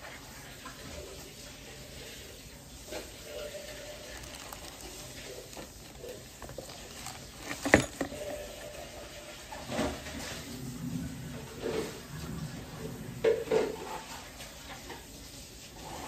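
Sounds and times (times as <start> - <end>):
plastic packaging crinkling: 3.2 - 8.6
small knocks: 4.2 - 8.4.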